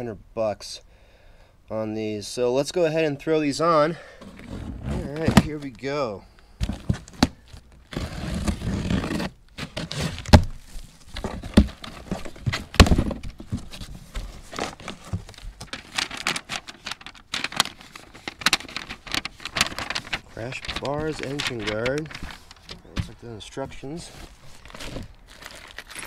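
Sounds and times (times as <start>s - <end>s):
cardboard scraping and tearing: 4.2s - 5.6s, 6.6s - 23.2s, 23.8s - 25.8s
plastic and paper crinkling: 6.6s - 26.0s.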